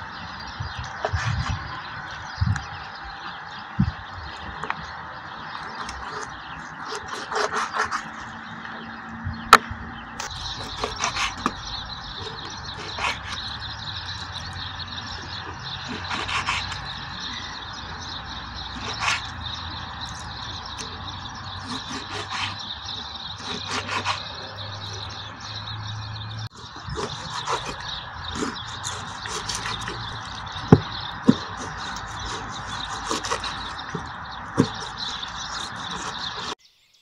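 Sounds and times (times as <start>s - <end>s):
knife cutting meat on wooden board: 5.6s - 8.3s, 10.2s - 25.2s, 26.6s - 36.6s.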